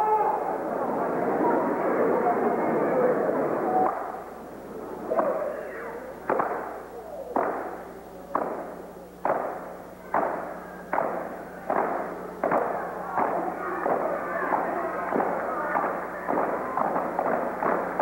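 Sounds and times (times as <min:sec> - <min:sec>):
stomps and hand strikes: 0:07.3 - 0:18.0.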